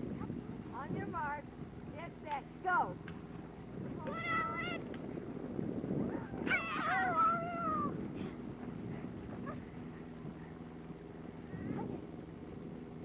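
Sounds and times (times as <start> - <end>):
low rumbling noise: 0.0 - 13.0
high-pitched voices shouting: 4.0 - 4.8.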